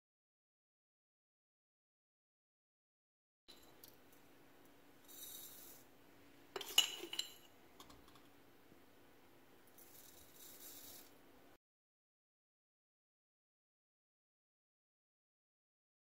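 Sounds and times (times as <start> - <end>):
coffee granules pouring hiss: 5.0 - 6.0, 9.7 - 11.2
spoon clinking against glass: 6.6 - 7.5.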